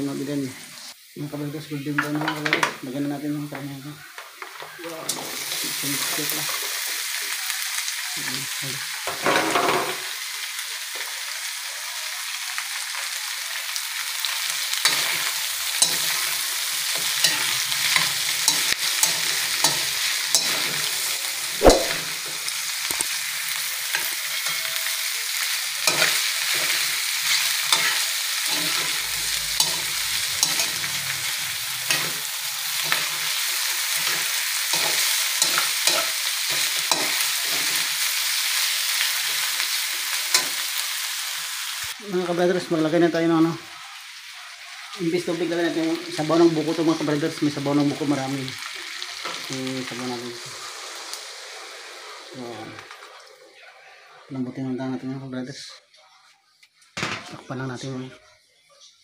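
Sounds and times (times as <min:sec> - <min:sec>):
meat sizzling in hot oil: 0:00.0 - 0:53.6
metal spatula scraping a wok: 0:14.8 - 0:23.1, 0:25.7 - 0:38.1.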